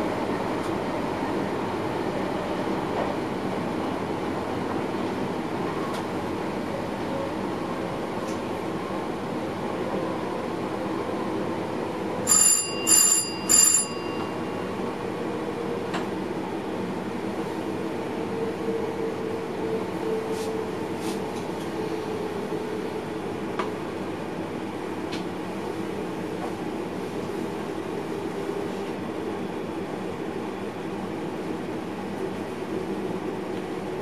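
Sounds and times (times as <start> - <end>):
train cab running noise: 9.8 - 34.0
electronic ringing tones: 12.3 - 14.8.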